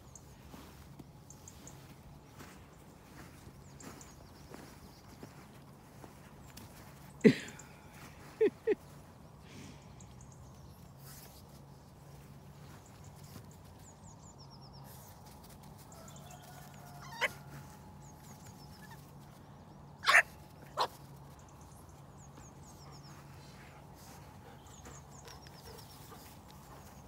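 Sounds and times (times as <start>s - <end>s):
small dog yapping: 20.0s - 21.0s.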